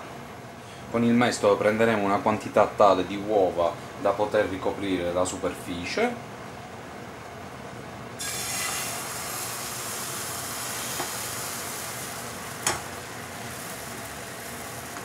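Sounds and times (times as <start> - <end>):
egg sizzling in frying pan: 8.2 - 15.0.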